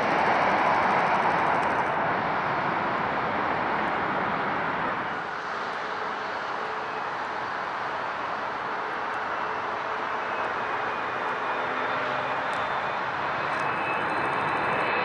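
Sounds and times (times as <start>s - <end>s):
jet engine rush: 0.0s - 15.0s.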